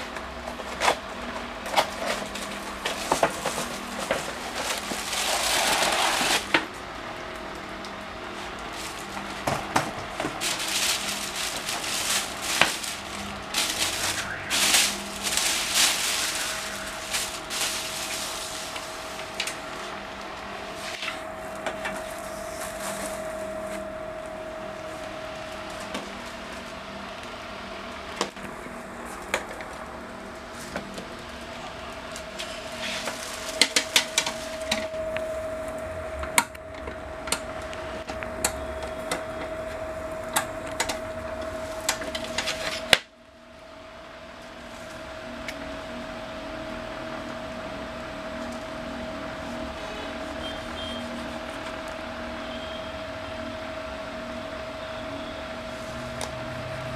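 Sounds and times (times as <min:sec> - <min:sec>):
plastic wrapping rustling: 0:00.0 - 0:27.3, 0:28.2 - 0:43.1
faint steady hum: 0:00.0 - 0:56.9.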